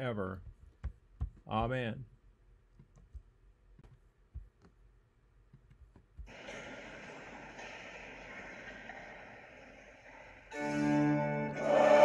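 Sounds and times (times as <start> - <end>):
hall ambience hiss: 6.3 - 12.0
orchestral music: 10.5 - 12.0.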